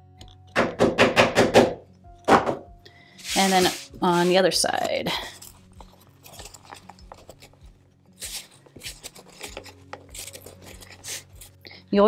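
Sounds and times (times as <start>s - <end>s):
fabric rustling and brushing: 3.2s - 4.5s.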